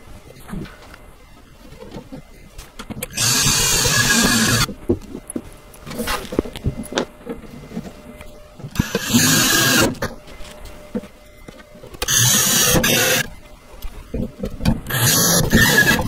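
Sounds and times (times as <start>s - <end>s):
cordless drill driving screws: 3.1s - 4.7s, 8.8s - 10.0s, 12.0s - 13.2s, 14.9s - 16.0s.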